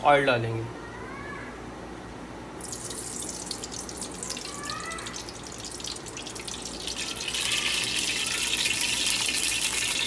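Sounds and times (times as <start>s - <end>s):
oil sizzling in hot pan: 2.6s - 4.5s, 5.2s - 10.0s
oil pouring: 2.6s - 10.0s.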